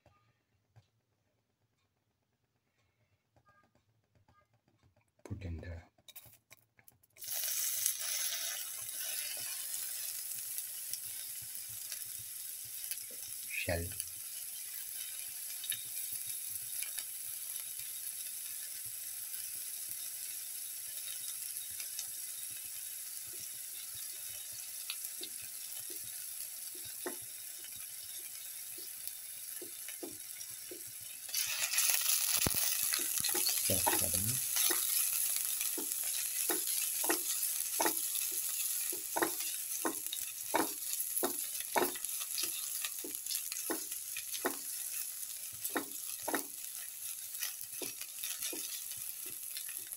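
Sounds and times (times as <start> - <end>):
spatula stirring in pan: 6.0 - 13.4, 14.0 - 49.9
shallots sizzling in hot oil: 7.2 - 49.9
crackling pops: 28.8 - 49.9.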